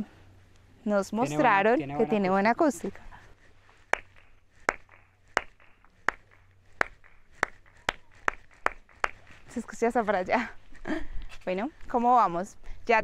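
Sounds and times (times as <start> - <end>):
sharp hand claps: 3.9 - 9.4.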